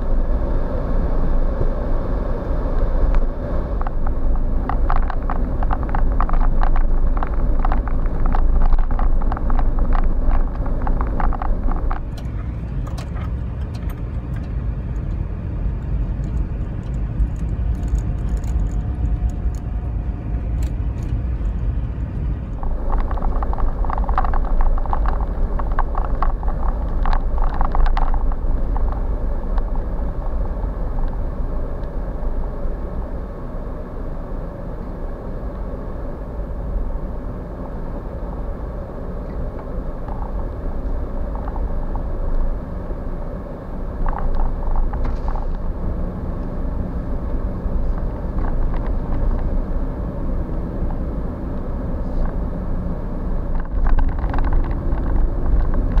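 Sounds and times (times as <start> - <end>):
engine and tyre rumble: 0.0 - 56.0
crackling clicks: 2.7 - 15.2, 15.8 - 19.7, 20.3 - 32.5, 39.2 - 52.5, 53.3 - 56.0.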